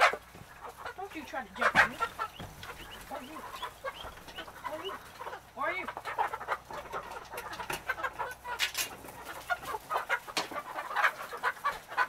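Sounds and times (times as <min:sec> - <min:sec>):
chickens clucking: 0:00.0 - 0:12.0.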